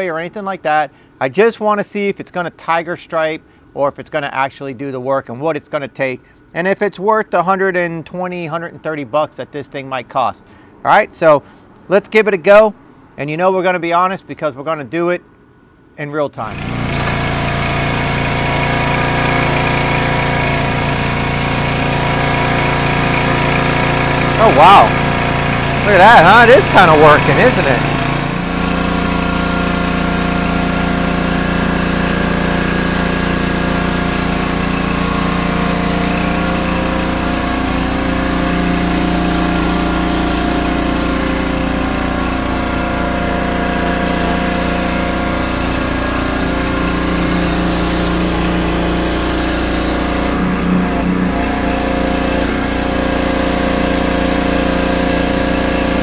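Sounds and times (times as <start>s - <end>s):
pressure washer running: 16.4s - 56.0s
water jet hissing on concrete: 16.7s - 56.0s.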